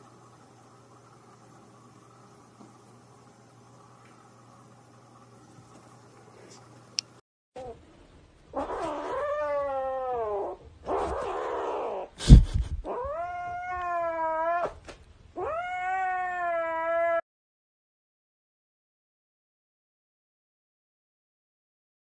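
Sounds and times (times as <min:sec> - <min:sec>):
cat yowling: 0:08.6 - 0:12.1, 0:12.8 - 0:14.8, 0:15.4 - 0:17.2.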